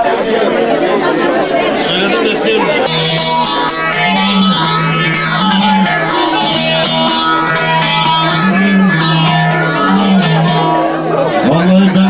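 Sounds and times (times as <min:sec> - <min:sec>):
long-necked lute melody: 0:02.6 - 0:11.6.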